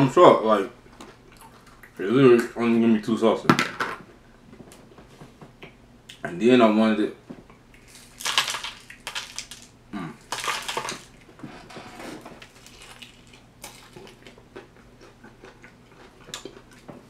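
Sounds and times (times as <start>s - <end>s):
food packaging crinkling: 7.8s - 14.4s.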